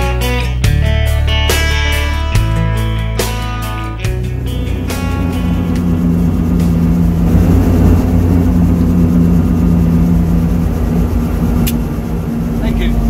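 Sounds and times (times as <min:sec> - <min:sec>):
helicopter engine and rotor: 0:02.8 - 0:13.0.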